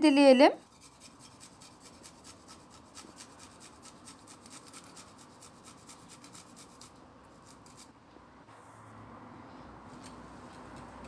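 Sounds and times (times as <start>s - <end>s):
garlic rasped on metal grater: 0.6s - 7.9s.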